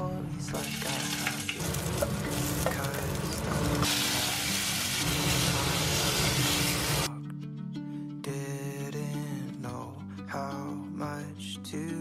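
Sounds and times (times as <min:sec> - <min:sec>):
tomato sizzling in hot oil: 0:00.6 - 0:07.1.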